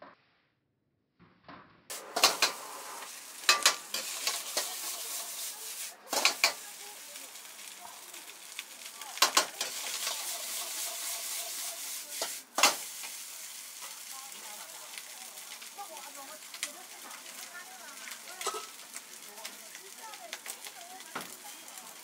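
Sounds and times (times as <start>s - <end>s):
rice sizzling in a hot wok: 1.9s - 22.0s
metal ladle clanking on wok: 2.2s - 2.6s, 3.4s - 4.8s, 18.4s - 18.8s.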